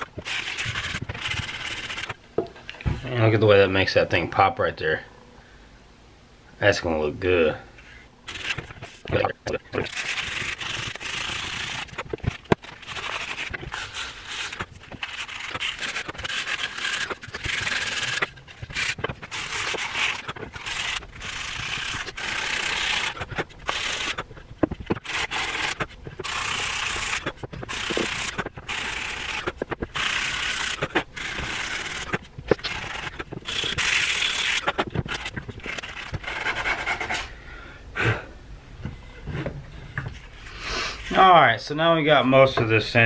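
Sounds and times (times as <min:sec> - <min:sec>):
sandpaper rasping on wood: 0:00.0 - 0:02.1, 0:09.8 - 0:12.0, 0:12.6 - 0:24.2, 0:24.9 - 0:37.2.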